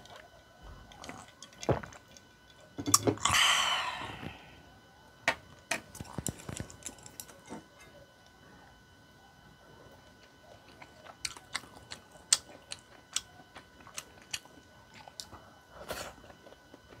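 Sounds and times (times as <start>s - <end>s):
breathy burst: 3.2s - 4.6s.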